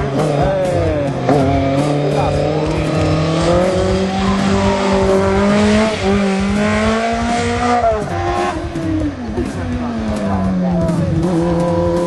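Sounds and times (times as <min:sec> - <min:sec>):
car engine revving hard: 0:00.0 - 0:12.0.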